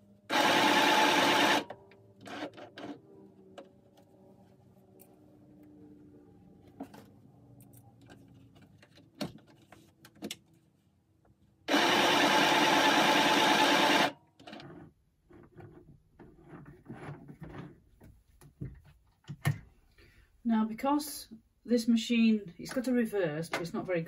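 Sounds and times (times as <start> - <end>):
sewing machine stitching: 0.3 - 3.0, 11.7 - 15.8.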